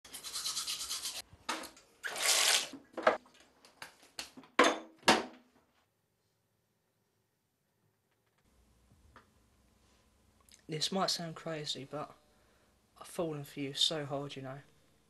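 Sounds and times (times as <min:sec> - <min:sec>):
teeth brushing: 0:00.1 - 0:01.2
water splashing in sink: 0:02.0 - 0:03.4.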